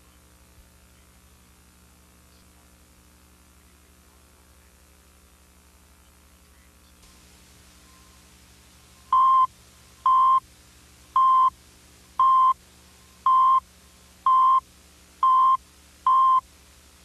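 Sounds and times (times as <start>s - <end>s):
short beeps: 9.1s - 9.5s, 10.1s - 10.4s, 11.2s - 11.5s, 12.2s - 12.6s, 13.3s - 13.6s, 14.3s - 14.6s, 15.2s - 16.4s.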